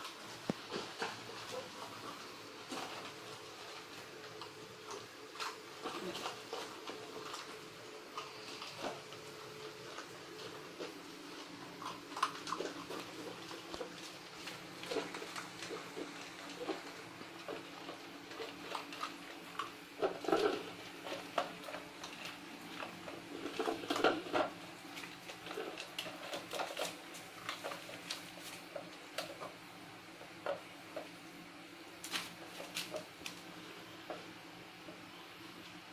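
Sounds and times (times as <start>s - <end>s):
puppies eating from bowls: 0.0s - 35.9s.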